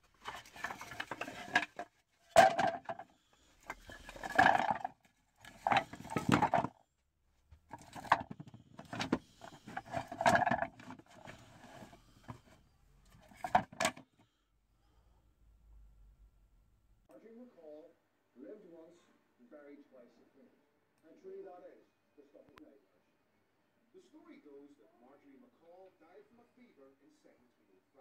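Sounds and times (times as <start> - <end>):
wooden boards clattering: 0.1 - 6.7, 7.7 - 12.6, 13.2 - 14.0.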